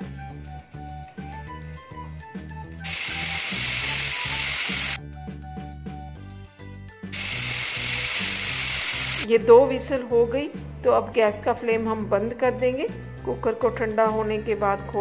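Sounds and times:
background music with steady beat: 0:00.0 - 0:15.0
pressure cooker whistling: 0:00.1 - 0:05.0, 0:07.1 - 0:09.3.

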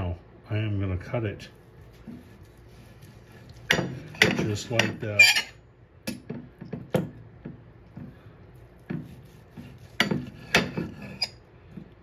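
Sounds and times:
knife scraping on plate: 0:01.9 - 0:05.6, 0:08.9 - 0:11.4.

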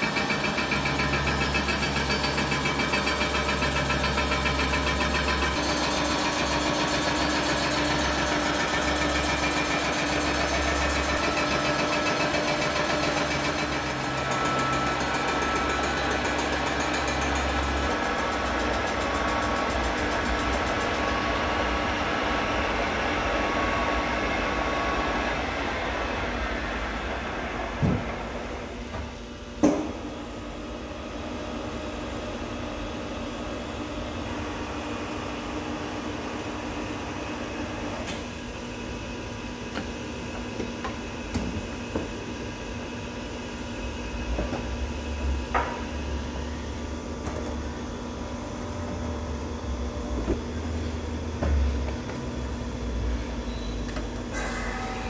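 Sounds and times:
milling machine cutting metal: 0:00.0 - 0:21.4.

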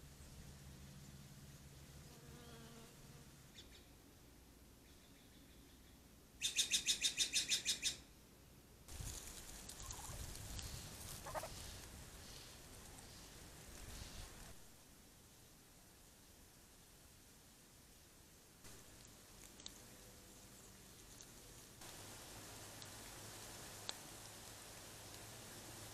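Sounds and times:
rustling noise: 0:08.9 - 0:14.7.

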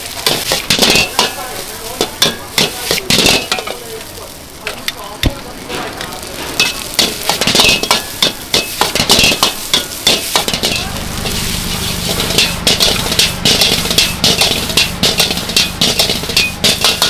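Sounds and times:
rice sizzling in a wok: 0:00.0 - 0:17.0
metal ladle scraping a pan: 0:05.7 - 0:17.0.

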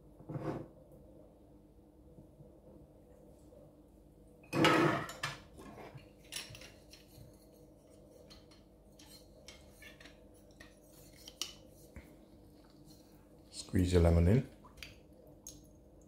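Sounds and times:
metal utensils clattering: 0:04.5 - 0:07.0.

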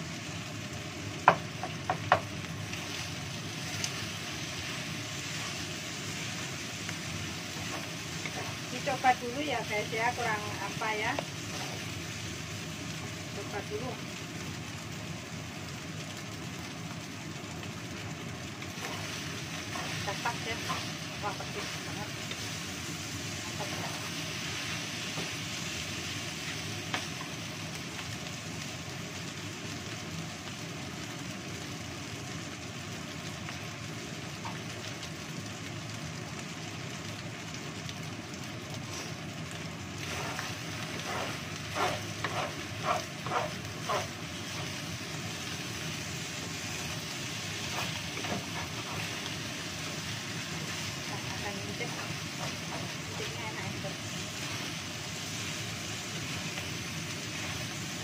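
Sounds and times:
rice sizzling in a wok: 0:00.0 - 0:58.0
spatula scraping pan: 0:40.0 - 0:44.9, 0:46.7 - 0:50.0, 0:51.8 - 0:54.7.

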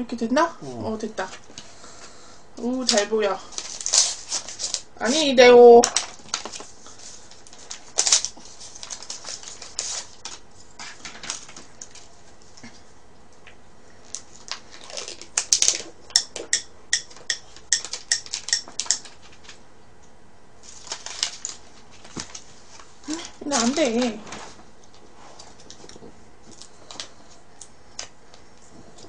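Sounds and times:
plastic packaging crinkling: 0:02.8 - 0:12.1, 0:14.0 - 0:16.1, 0:17.6 - 0:19.6, 0:20.6 - 0:25.8.

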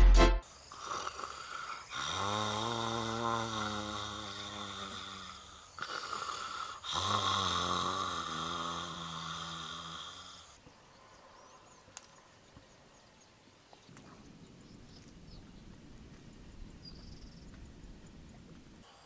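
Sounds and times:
man snoring: 0:00.7 - 0:10.6.

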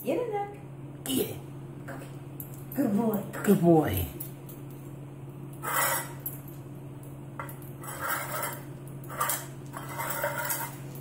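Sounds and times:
metal tin rattling on tile floor: 0:07.4 - 0:11.0.

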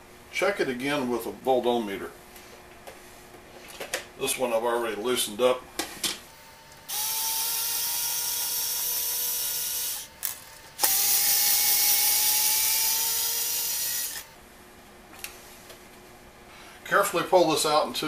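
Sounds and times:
power screwdriver motor whining: 0:06.9 - 0:14.3
screwdriver click: 0:10.2 - 0:11.4.

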